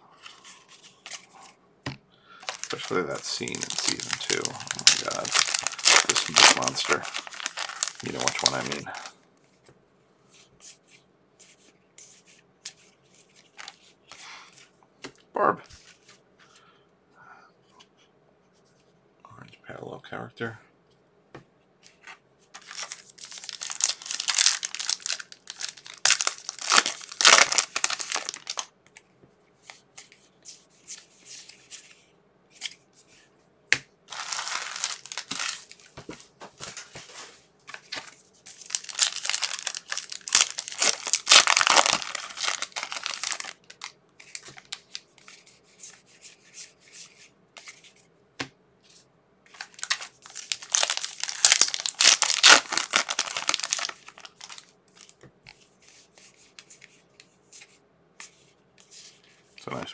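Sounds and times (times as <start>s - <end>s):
wrappers tearing and crinkling: 2.4s - 9.1s, 22.6s - 28.7s, 34.1s - 36.0s, 37.8s - 45.0s, 49.6s - 55.2s.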